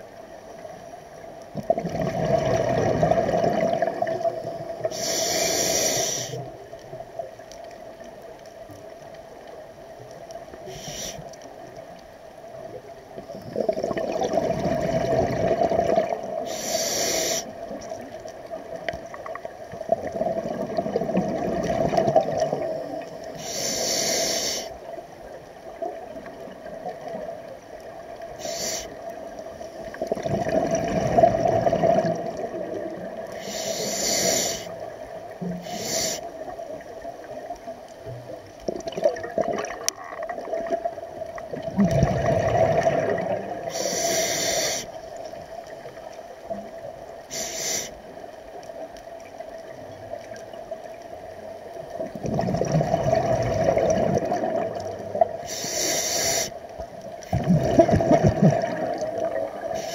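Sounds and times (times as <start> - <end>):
exhaled bubbles rushing: 1.6 - 4.6, 13.4 - 16.5, 19.4 - 22.8, 30.0 - 33.3, 38.7 - 43.7, 52.0 - 55.5, 57.2 - 59.8
regulator hissing inhale: 4.8 - 6.5, 10.6 - 11.4, 16.4 - 17.6, 22.8 - 24.8, 28.4 - 29.1, 33.3 - 34.8, 35.6 - 36.4, 43.6 - 45.1, 47.3 - 48.0, 55.4 - 56.6, 59.7 - 59.9.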